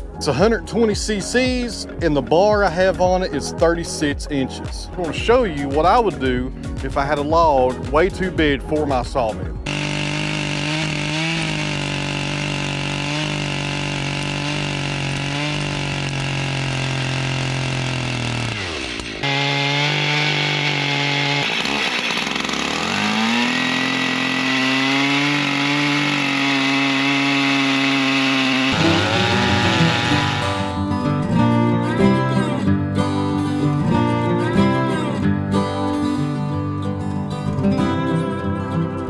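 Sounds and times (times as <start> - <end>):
chainsaw cutting log: 9.6 - 31.0.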